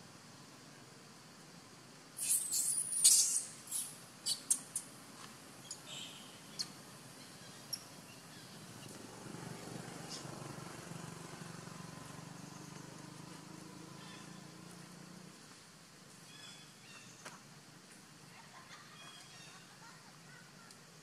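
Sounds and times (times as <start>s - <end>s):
monkeys screaming: 2.2s - 4.8s
sharp high squeaks: 2.2s - 4.9s.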